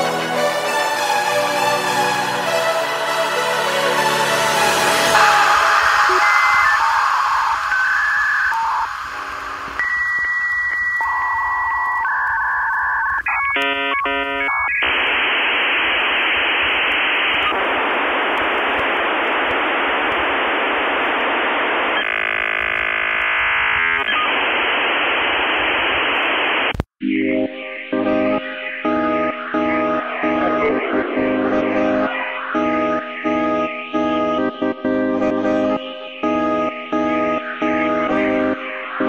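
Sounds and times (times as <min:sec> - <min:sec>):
synth tones: 0:04.0 - 0:26.1, 0:27.0 - 0:39.0
radio static noise: 0:05.0 - 0:39.0.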